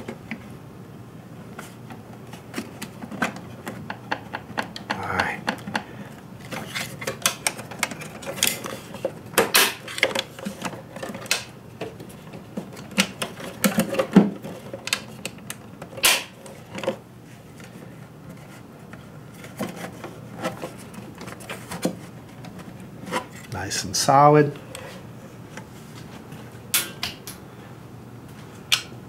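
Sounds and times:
plastic clicks knocks and rubbing: 2.5 - 5.9.

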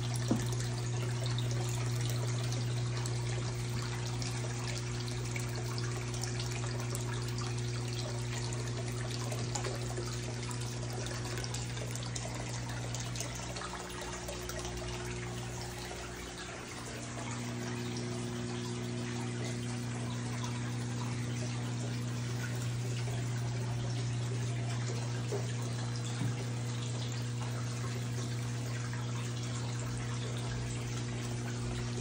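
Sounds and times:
filter motor hum: 0.0 - 32.0
water trickling and splashing: 0.0 - 32.0.

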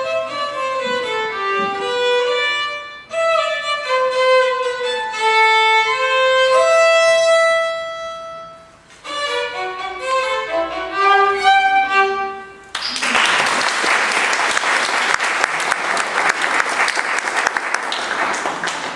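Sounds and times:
solo violin playing: 0.0 - 12.7
applause: 12.7 - 18.9.

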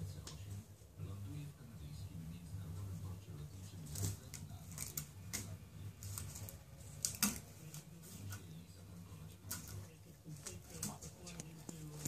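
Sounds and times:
ribbon crinkling and rustling: 3.6 - 8.5.

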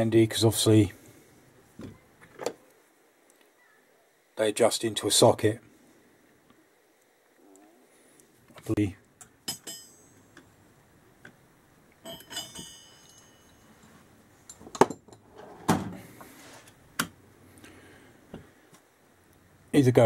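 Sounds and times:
metallic jingle: 9.5 - 10.2, 12.0 - 14.6.

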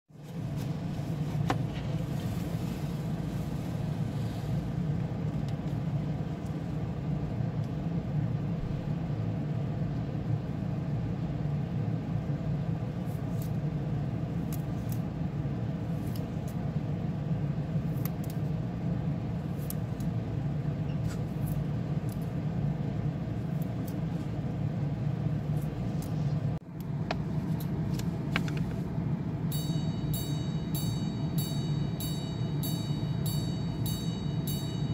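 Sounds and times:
low background hum: 0.1 - 34.9.

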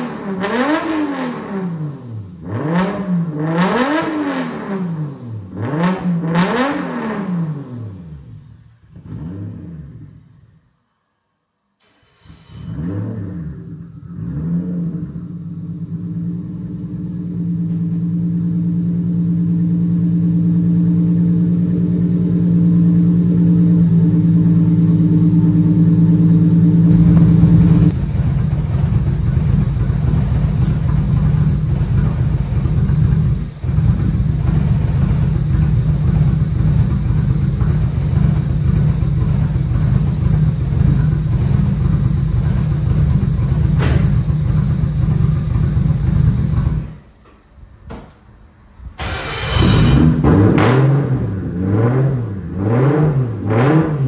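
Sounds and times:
car engine idling: 13.3 - 47.1.

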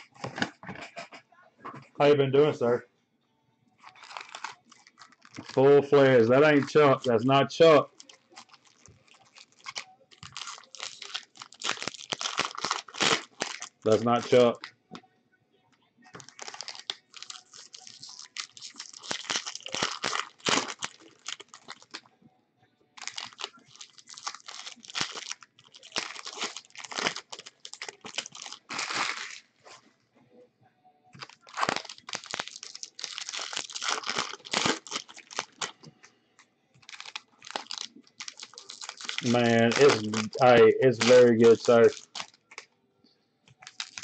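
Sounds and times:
foil wrappers crinkling and tearing: 3.8 - 14.7, 16.2 - 22.1, 23.0 - 29.9, 31.2 - 35.9, 36.8 - 42.7, 43.5 - 44.0.

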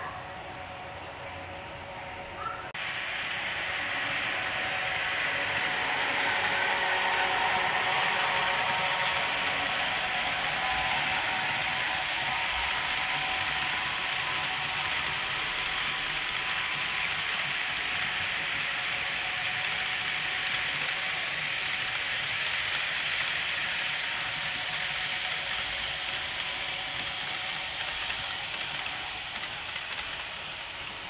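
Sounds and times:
model train wheels on rail: 0.0 - 31.0.

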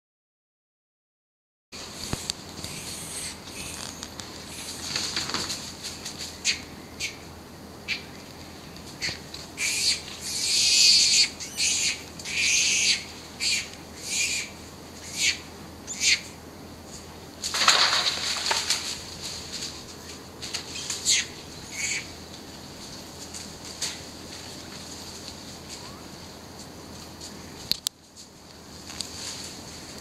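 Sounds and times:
birds calling: 1.9 - 16.5, 19.6 - 23.1.

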